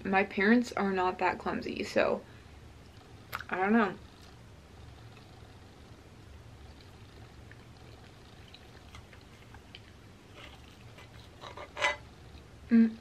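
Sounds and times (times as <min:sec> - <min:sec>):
mouth eating noises: 0:06.6 - 0:11.4
fork scraping in skillet: 0:10.3 - 0:12.1
person humming: 0:12.7 - 0:13.0.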